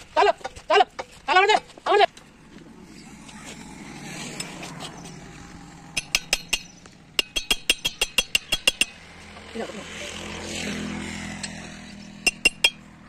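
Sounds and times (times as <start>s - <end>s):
metal striking metal: 5.8s - 9.1s, 11.4s - 13.0s.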